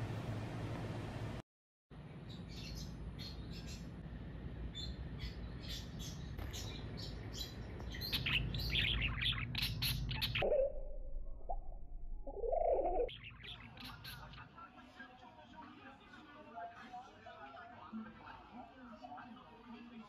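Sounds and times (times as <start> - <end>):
budgerigar chirping: 4.7 - 10.5, 12.3 - 14.4
low hum: 10.4 - 13.1.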